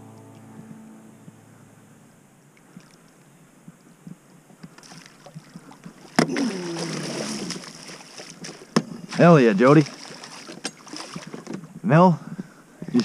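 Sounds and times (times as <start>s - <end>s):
fish thrashing and splashing: 4.8s - 9.2s, 9.8s - 11.5s.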